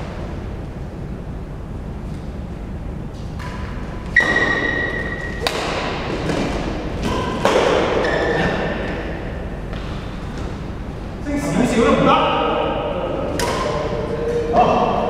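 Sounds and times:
rackets hitting shuttlecock: 3.2s - 10.6s, 13.3s - 14.0s
shoes squeaking on court floor: 4.0s - 10.7s.

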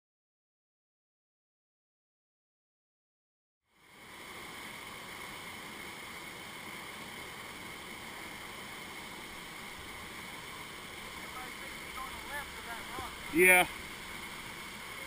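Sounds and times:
river rapid whitewater rushing: 3.8s - 15.0s.

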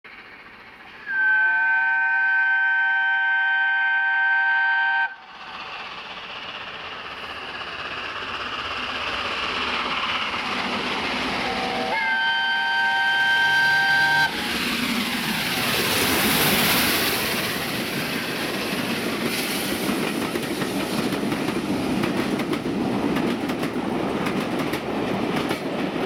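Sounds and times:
train rushing past at speed: 0.1s - 26.0s
steam locomotive whistle: 0.9s - 5.2s, 11.5s - 14.4s.

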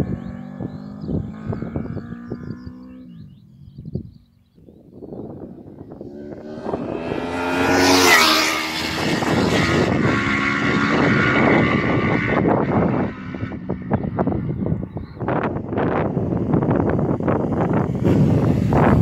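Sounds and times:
motorcycle engine passing at speed: 0.0s - 4.3s, 4.9s - 19.0s.

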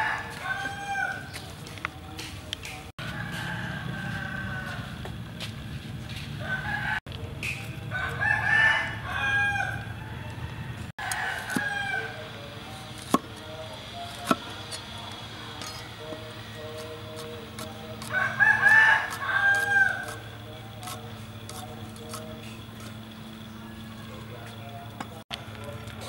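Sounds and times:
rooster crowing: 0.0s - 1.4s, 3.0s - 5.1s, 6.4s - 7.0s, 7.9s - 12.3s, 18.0s - 20.3s
cleaver chopping on wooden board: 11.4s - 11.7s.

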